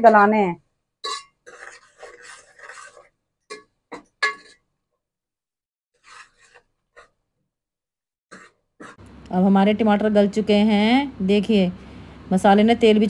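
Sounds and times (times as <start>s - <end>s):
ladle clinking against a pot: 1.0s - 2.2s, 3.5s - 4.6s
metal ladle scraping a pot: 1.0s - 4.6s, 6.0s - 7.1s, 8.3s - 9.0s.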